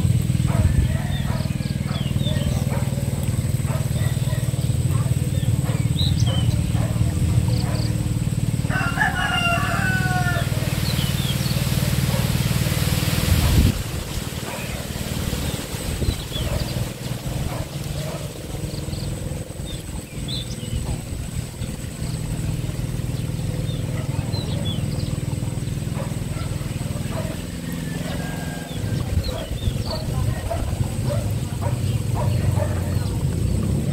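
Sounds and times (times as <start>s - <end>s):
hand tractor engine running: 0.0s - 33.9s
small birds chirping: 0.0s - 33.9s
rooster crowing: 0.5s - 2.3s, 8.6s - 11.1s, 27.0s - 29.4s.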